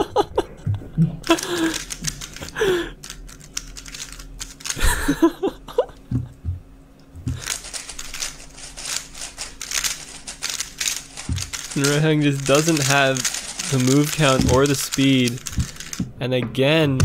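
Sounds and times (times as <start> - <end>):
plastic puzzle cube clicking: 1.4 - 4.8, 7.4 - 16.0.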